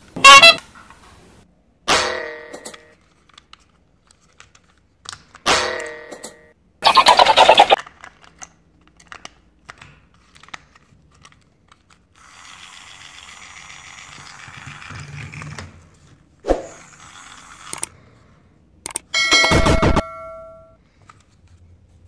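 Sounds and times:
plastic toy parts clicking: 7.7 - 12.6, 17.1 - 17.9, 18.8 - 19.1
toy train motor whirring: 12.1 - 15.5, 16.7 - 18.0.

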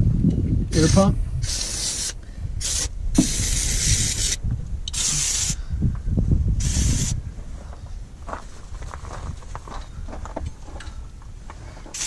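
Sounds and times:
aerosol spray hissing: 0.8 - 5.6, 6.6 - 7.2.

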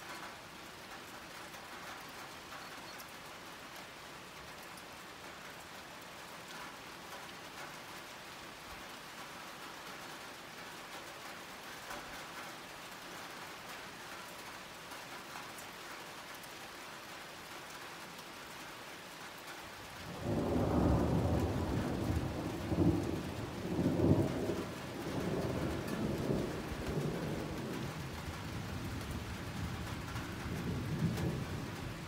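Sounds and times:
rain hissing: 19.2 - 32.0
rolling thunder rumble: 20.1 - 32.0.

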